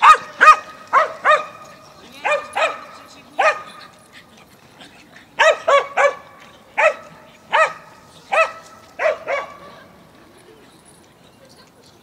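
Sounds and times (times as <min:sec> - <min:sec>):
dog barking: 0:00.0 - 0:01.6, 0:02.2 - 0:03.7, 0:05.4 - 0:09.7.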